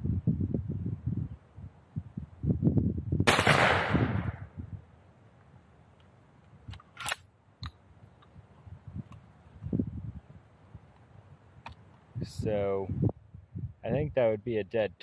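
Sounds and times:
wind buffeting microphone: 0.0s - 4.9s, 8.3s - 14.3s
shotgun blast: 3.2s - 4.5s
shotgun handling clicks: 6.0s - 8.3s.

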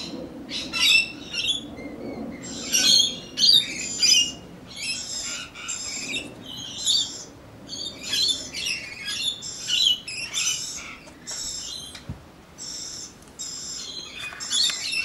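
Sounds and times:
parrots screeching: 2.4s - 12.0s.

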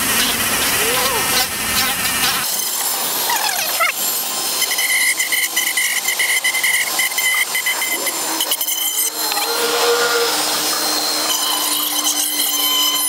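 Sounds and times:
rotary tool sanding plastic: 0.0s - 13.0s.

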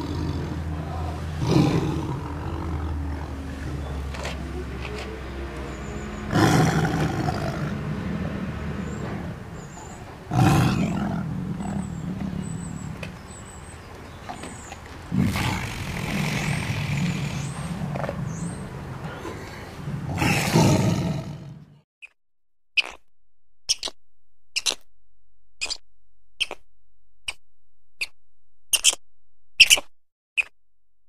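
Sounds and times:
tiger roaring: 0.0s - 4.4s, 6.2s - 9.4s, 10.3s - 13.4s, 15.1s - 21.8s.

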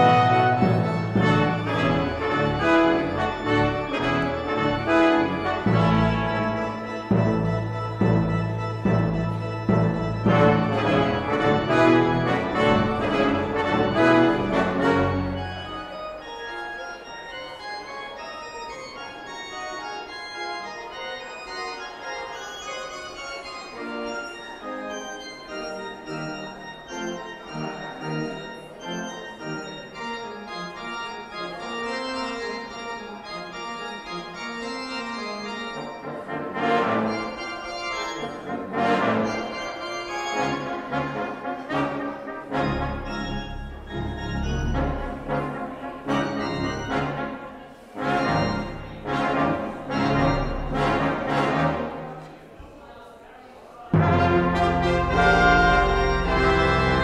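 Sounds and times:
brass ensemble with timpani: 0.0s - 16.2s, 33.5s - 52.4s, 53.9s - 57.0s
organ chords: 0.0s - 52.3s, 53.9s - 57.0s.

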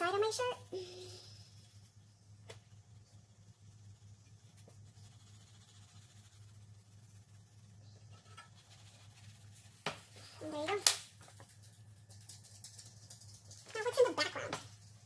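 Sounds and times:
crayon scratching on paper: 0.0s - 10.7s
low steady hum: 0.0s - 15.0s.

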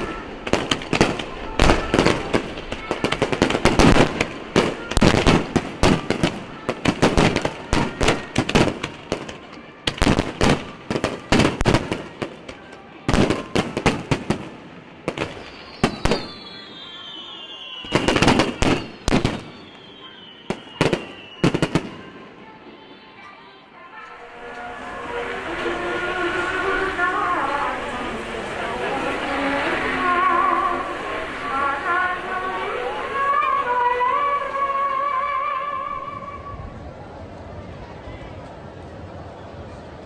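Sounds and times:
fireworks bangs and crackles: 0.0s - 22.6s, 24.3s - 34.6s
high whistling tone falling: 15.3s - 22.2s, 24.0s - 36.8s.

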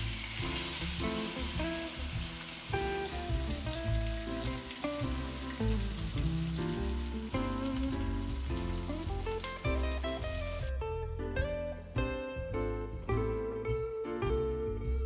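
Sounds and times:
fish sizzling in a pan: 0.0s - 10.7s
background music: 0.0s - 15.0s.

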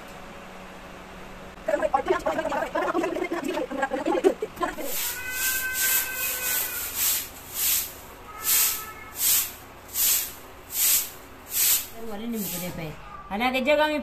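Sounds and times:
broom sweeping plastic mat: 4.8s - 13.0s
person speaking: 12.0s - 13.4s.

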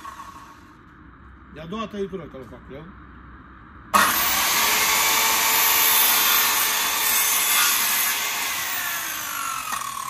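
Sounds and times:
circular saw cutting wood: 4.0s - 10.0s.

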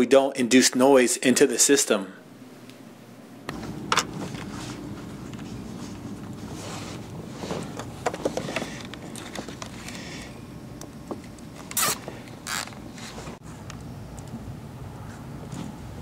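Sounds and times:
wires clicking and rustling on plastic: 7.6s - 12.8s.

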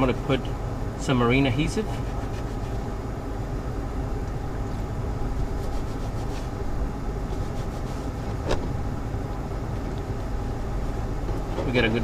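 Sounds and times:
paper towel rubbing plastic: 1.8s - 2.9s, 5.3s - 8.7s.

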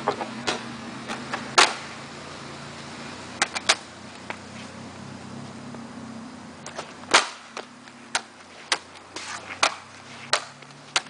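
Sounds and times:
skateboard clacking on hard court: 6.7s - 11.0s.

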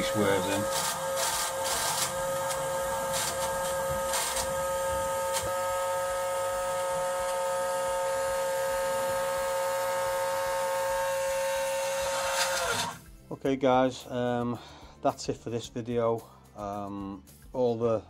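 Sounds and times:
electric motor whining: 0.0s - 13.2s.

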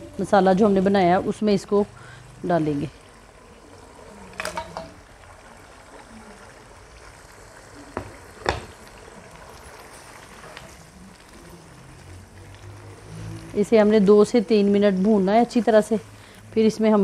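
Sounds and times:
masala simmering hiss: 0.0s - 17.0s
sharp knocks in pan: 8.0s - 8.8s.

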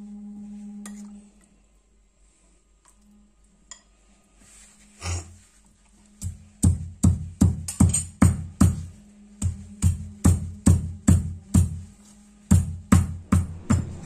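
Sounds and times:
stone pestle pounding: 6.2s - 11.8s, 12.5s - 14.0s.

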